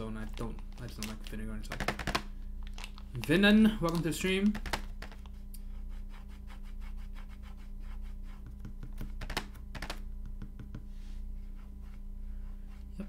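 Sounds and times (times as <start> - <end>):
steady low hum: 0.0 - 13.0
typing on mechanical keyboard: 4.5 - 5.2.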